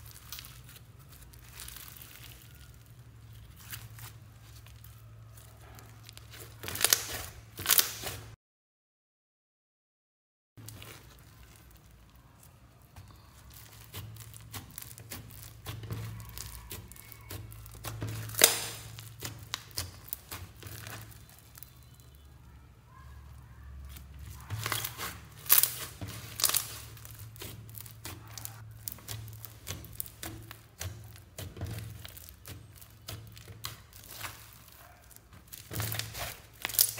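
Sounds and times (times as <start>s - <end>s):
slime being squeezed by hand: 0.0s - 8.3s, 10.6s - 22.2s, 23.9s - 36.9s.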